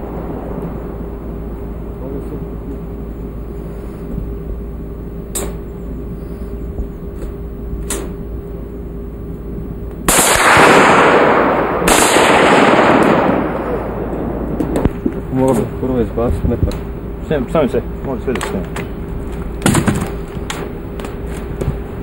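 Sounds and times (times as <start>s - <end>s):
steady low hum: 0.0s - 22.0s
gunshots echoing: 10.1s - 15.3s.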